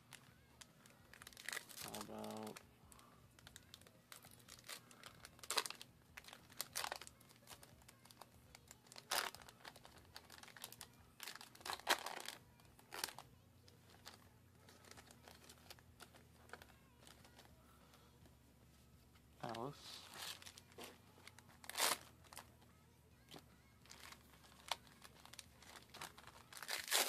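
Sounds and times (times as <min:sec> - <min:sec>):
foil packs crinkling: 0:00.8 - 0:02.6, 0:03.4 - 0:13.2, 0:19.4 - 0:22.5, 0:23.2 - 0:27.0
foil packs tearing open: 0:23.9 - 0:27.0.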